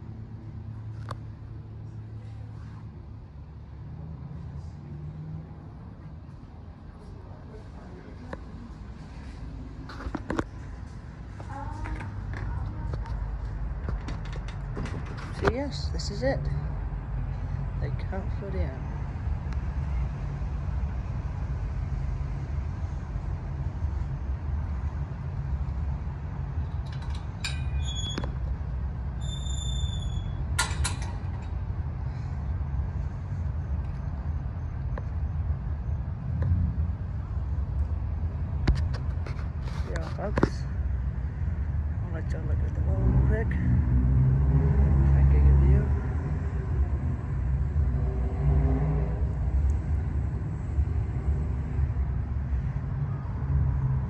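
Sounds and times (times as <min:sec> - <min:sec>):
engine hum: 0:00.0 - 0:54.0
low outdoor rumble: 0:00.0 - 0:54.0
short high-pitched squeal: 0:29.2 - 0:30.4.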